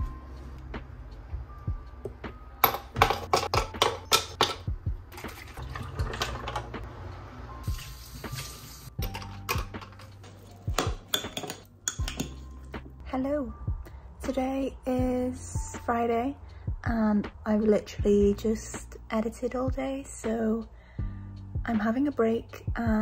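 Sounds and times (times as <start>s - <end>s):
drink pouring into glass: 5.2s - 6.7s.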